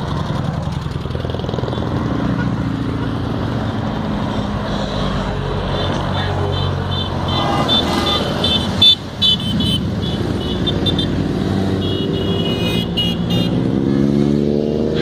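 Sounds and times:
motorcycles riding past: 0:00.0 - 0:15.0
motorcycle engine revving: 0:07.2 - 0:15.0.

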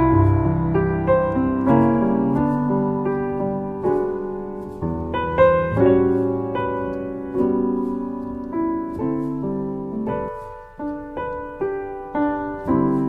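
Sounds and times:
slow piano chords: 0:00.0 - 0:13.0.

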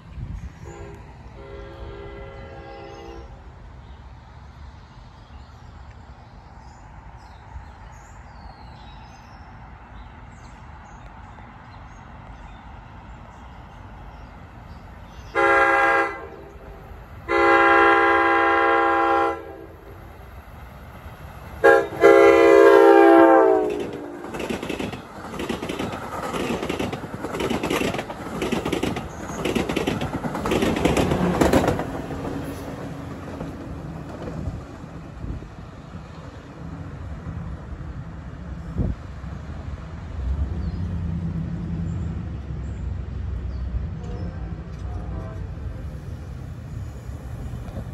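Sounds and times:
train air horn blasts: 0:00.6 - 0:03.5, 0:15.3 - 0:19.9, 0:21.6 - 0:24.2
train wheels clattering over rails: 0:21.4 - 0:35.2.

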